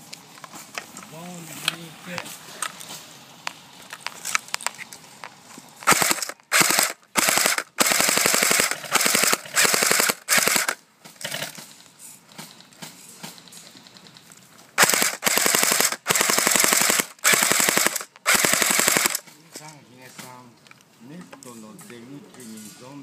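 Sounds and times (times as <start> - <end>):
airsoft gun firing bursts: 5.8 - 10.8, 14.8 - 19.2.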